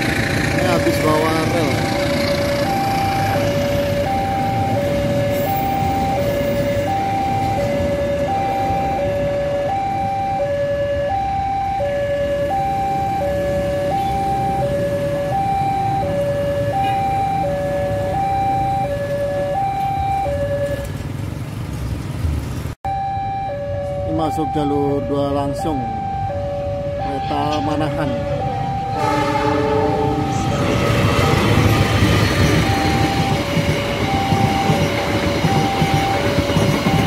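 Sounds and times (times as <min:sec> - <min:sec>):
freight train rumbling past: 0:00.0 - 0:09.5, 0:27.2 - 0:37.0.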